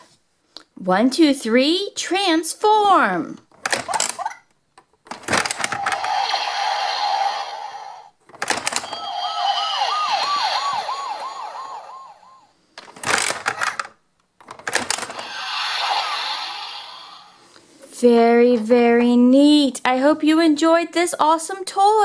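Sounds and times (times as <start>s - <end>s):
warbling siren-like tone: 8.8s - 12.6s.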